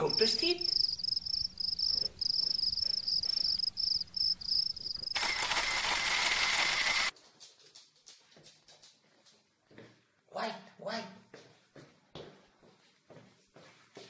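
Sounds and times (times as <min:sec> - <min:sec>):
cricket chirping: 0:00.0 - 0:07.0.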